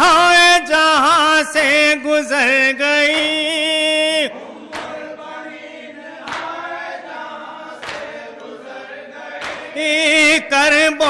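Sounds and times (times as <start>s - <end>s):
mourners softly chanting: 3.0s - 11.0s.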